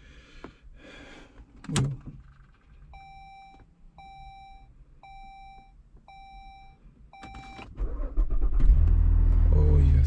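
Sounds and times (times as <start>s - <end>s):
car warning chime beeping: 2.9s - 7.7s
car engine starting: 7.2s - 10.0s.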